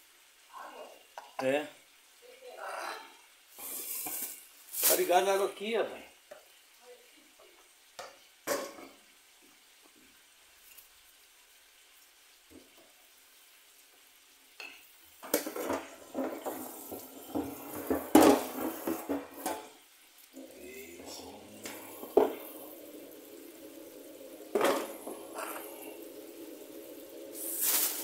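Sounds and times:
pots and pans clattering: 8.5s - 9.0s, 14.6s - 19.8s, 21.0s - 28.0s.

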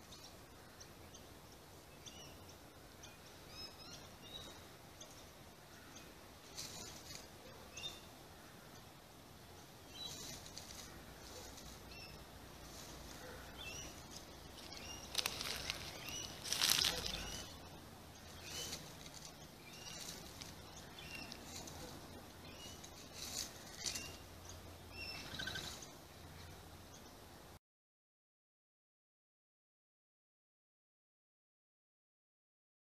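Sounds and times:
small birds chirping: 0.0s - 27.6s
bird scratching through dry leaves: 6.4s - 7.4s, 10.0s - 24.2s.

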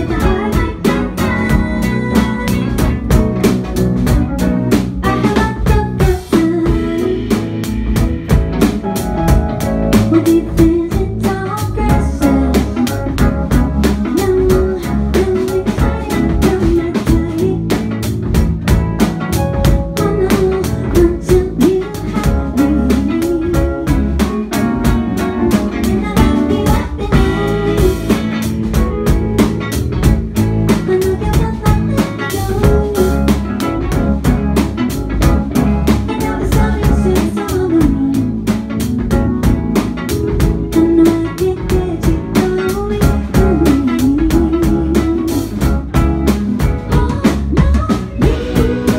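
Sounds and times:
woman singing: 0.0s - 3.5s, 5.0s - 7.7s, 9.9s - 18.1s, 19.6s - 28.5s, 30.7s - 34.0s, 35.8s - 38.8s, 40.7s - 48.9s
drum kit beat: 0.0s - 48.9s
electric guitar: 0.0s - 48.9s.

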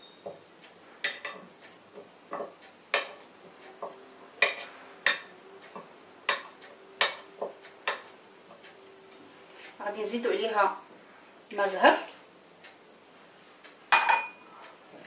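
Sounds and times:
knife clicking on clay dish: 7.9s - 8.1s.

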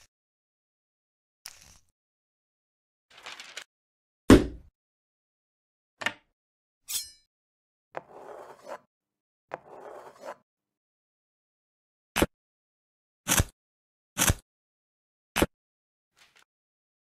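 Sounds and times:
paper rustle: 3.1s - 3.7s
blade cutting paper along ruler: 9.5s - 10.4s, 13.3s - 13.6s, 14.2s - 14.4s.

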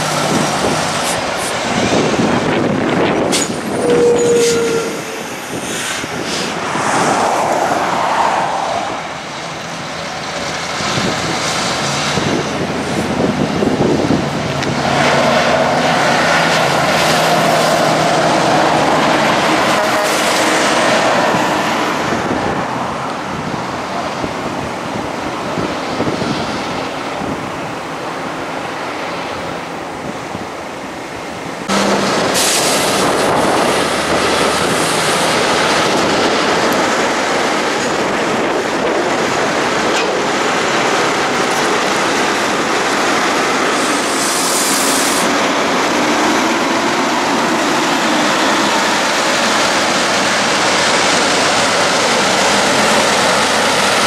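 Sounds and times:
heavy diesel trucks: 0.0s - 54.0s
high air hisses: 5.0s - 9.2s, 43.7s - 45.5s.

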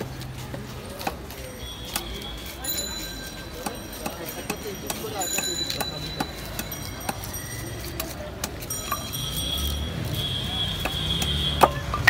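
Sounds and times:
thin high ringing tones: 1.6s - 10.4s.

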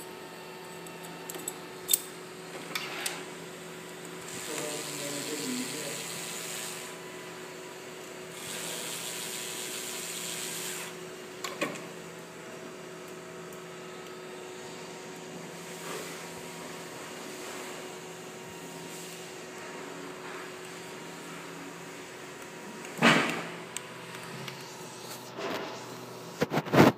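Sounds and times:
steady hum: 0.0s - 26.9s
cordless drill driving screws: 8.4s - 11.0s.

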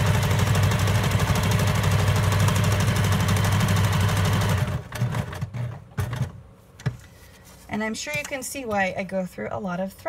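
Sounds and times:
sewing machine running fast: 0.0s - 5.7s.

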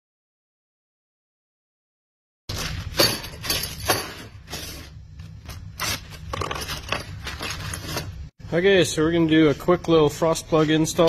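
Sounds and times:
low steady hum: 2.5s - 11.0s.

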